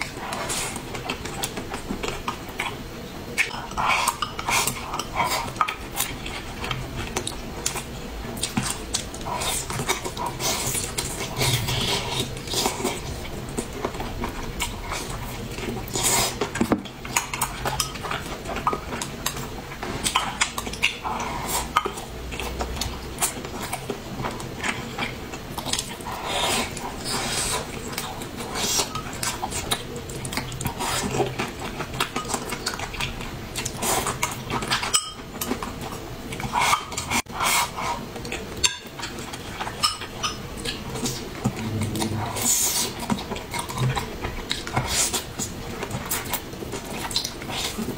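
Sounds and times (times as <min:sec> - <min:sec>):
person chewing: 0:03.4 - 0:19.4.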